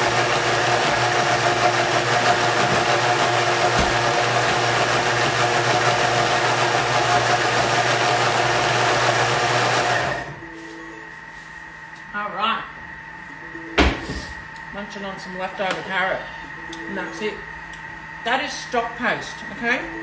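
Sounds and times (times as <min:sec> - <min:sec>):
food processor whirring: 0:00.0 - 0:10.4.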